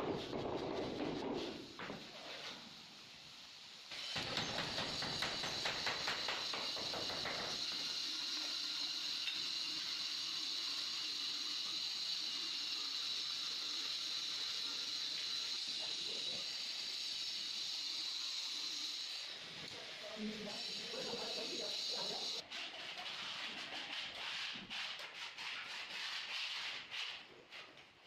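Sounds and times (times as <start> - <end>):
steady high hiss: 1.2 - 22.4.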